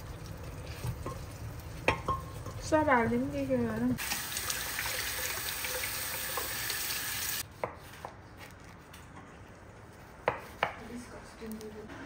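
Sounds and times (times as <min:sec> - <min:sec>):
meat sizzling in a pot: 0:00.0 - 0:07.4.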